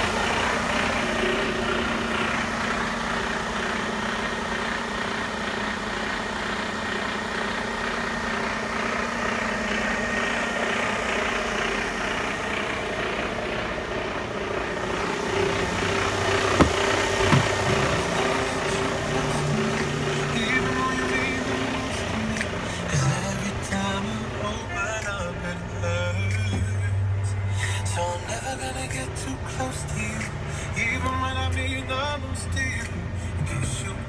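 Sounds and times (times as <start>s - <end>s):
diesel truck engine idling: 0.0s - 34.0s
sharp knocks: 16.5s - 18.0s.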